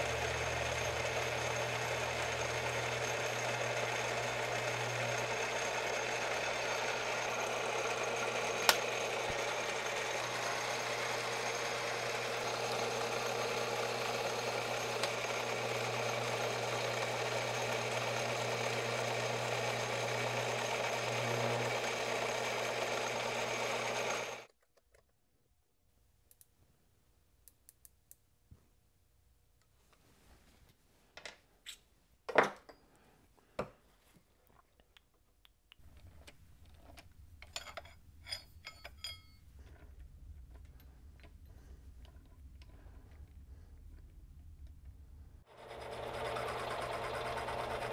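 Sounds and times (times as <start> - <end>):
lathe motor hum: 0.0 - 24.5, 45.5 - 47.9.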